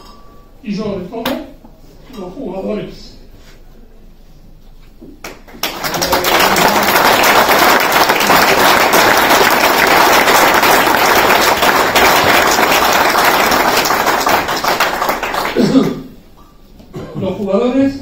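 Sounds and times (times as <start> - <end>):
audience applauding: 5.2 - 16.1.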